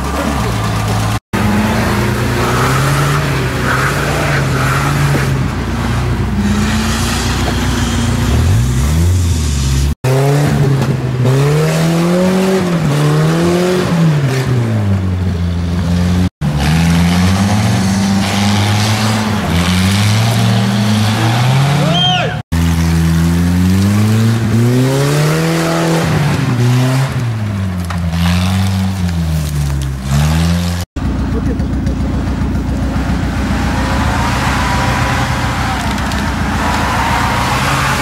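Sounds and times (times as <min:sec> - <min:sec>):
off-road vehicle engines revving: 0:00.0 - 0:38.0.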